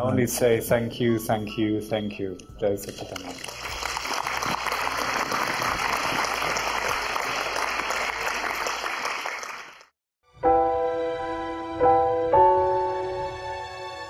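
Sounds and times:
music: 0.0 - 9.4, 10.2 - 14.0
large audience applauding: 2.8 - 9.9.

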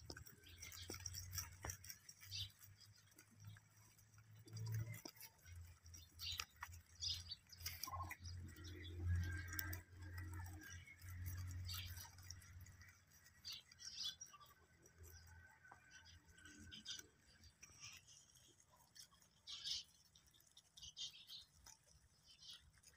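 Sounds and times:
rabbits chewing grass: 0.0 - 22.9
bird chirps: 2.2 - 3.6, 5.9 - 18.4, 19.3 - 21.6.

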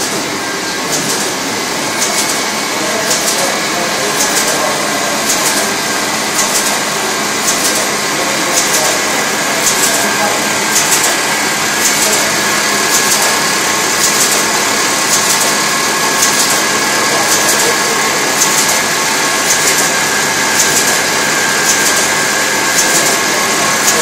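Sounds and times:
machine clatter and whirr: 0.0 - 24.0
sharp mechanical rattle: 5.2 - 7.9, 10.7 - 17.7, 18.4 - 23.2.

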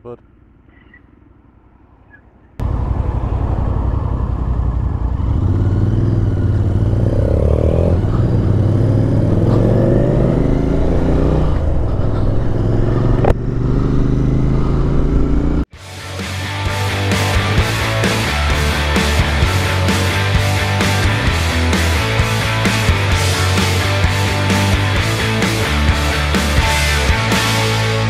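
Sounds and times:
motorcycle engines accelerating: 0.3 - 15.7, 16.8 - 28.0
wind rushing: 2.9 - 15.6.

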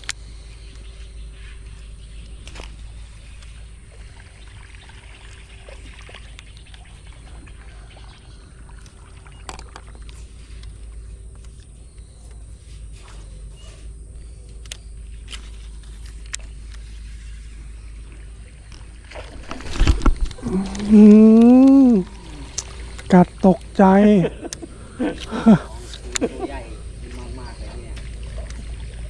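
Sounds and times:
faint steady hum: 0.0 - 29.0
low rumble: 14.0 - 29.0.

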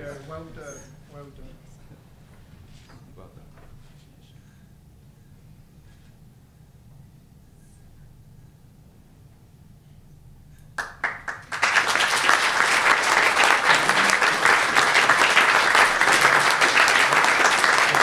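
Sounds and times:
audience applauding: 10.8 - 18.0.

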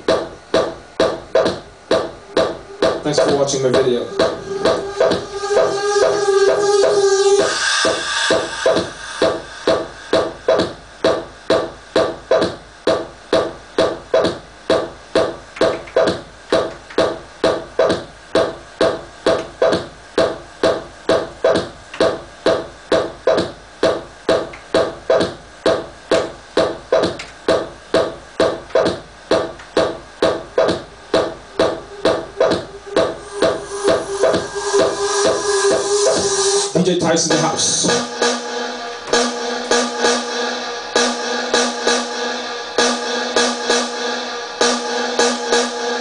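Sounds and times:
progressive house music: 0.0 - 46.0
pulsing synth chord: 1.8 - 10.5, 30.9 - 46.0.

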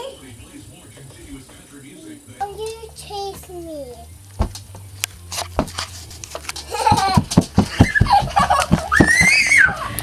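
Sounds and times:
running steps on wooden floor: 5.5 - 10.0
toddler squealing: 8.9 - 10.0.

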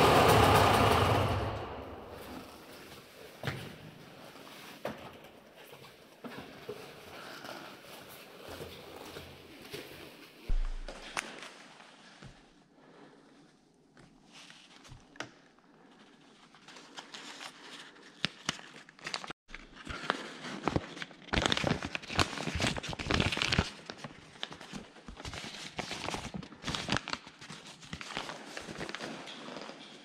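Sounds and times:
paper crinkling and rustling: 14.2 - 30.0.

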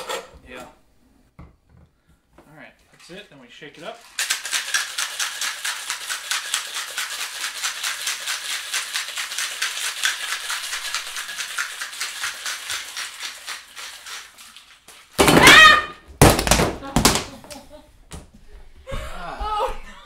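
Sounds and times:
ice rattling in cocktail shaker: 3.8 - 15.6.

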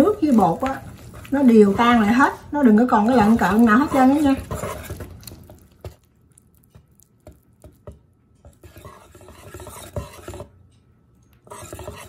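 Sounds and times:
whisk scraping a metal bowl: 0.0 - 6.0, 8.4 - 10.6, 11.4 - 12.0.

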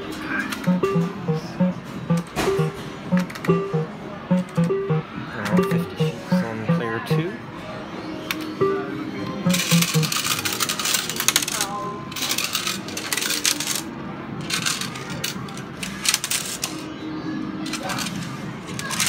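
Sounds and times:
coins clattering into metal tray: 9.6 - 16.8.

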